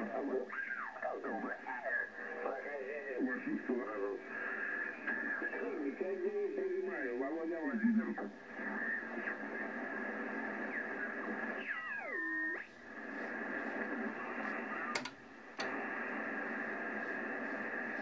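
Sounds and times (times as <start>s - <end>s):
radio static hiss with whistle: 0.0s - 18.0s
receiver clicks: 14.8s - 15.9s.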